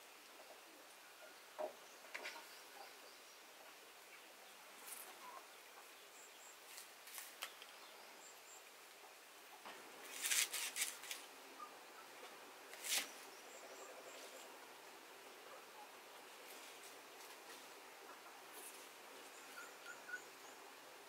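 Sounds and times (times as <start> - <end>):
faint bird chirps: 1.0 - 6.6, 19.2 - 20.8.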